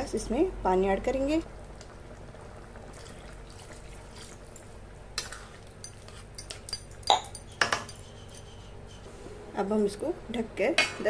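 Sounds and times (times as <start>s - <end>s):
spoon stirring in metal pan: 5.2s - 9.1s
spoon clinking on pan: 5.8s - 8.5s.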